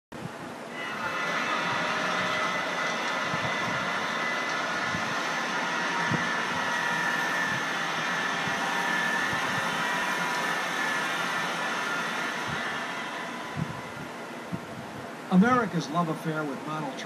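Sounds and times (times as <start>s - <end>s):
model trains rolling: 0.8s - 12.8s.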